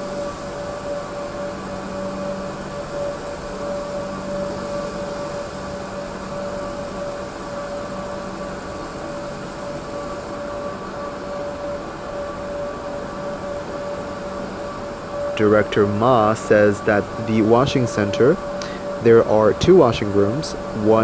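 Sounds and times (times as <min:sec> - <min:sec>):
mechanical whine: 0:00.0 - 0:21.0
low hum: 0:09.6 - 0:21.0.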